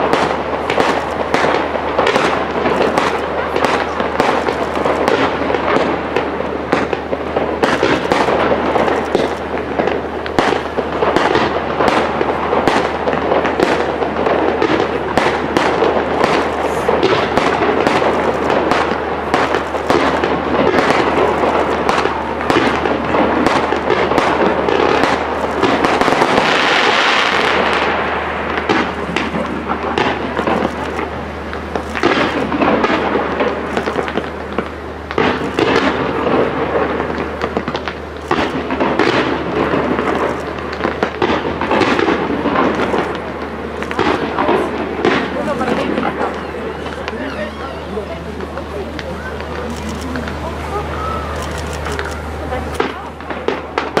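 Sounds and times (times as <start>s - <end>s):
fireworks bangs and crackles: 0.0s - 54.0s
fireworks hiss: 0.0s - 54.0s.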